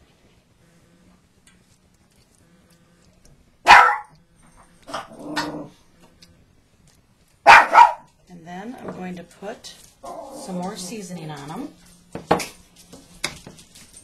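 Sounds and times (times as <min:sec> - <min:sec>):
dog barking: 0:03.6 - 0:04.2, 0:07.4 - 0:08.1.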